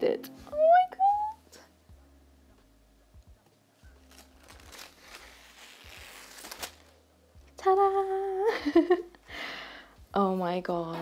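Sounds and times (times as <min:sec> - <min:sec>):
paper sheet rustling and crinkling: 0:03.9 - 0:07.0.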